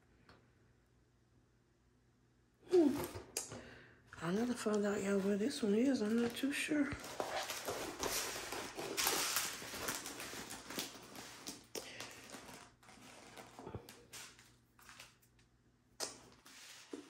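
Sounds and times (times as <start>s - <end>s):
plastic film rustling and crinkling: 4.6s - 15.3s.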